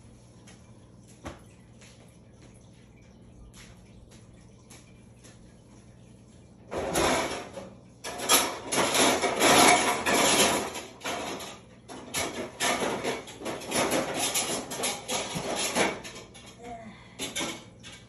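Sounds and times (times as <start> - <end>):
rustling and scraping of handled objects: 6.8 - 18.0.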